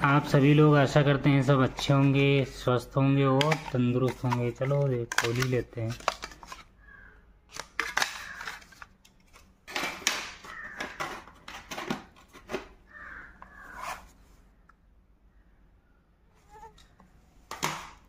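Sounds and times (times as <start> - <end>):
rustling and crinkling: 3.4 - 6.7.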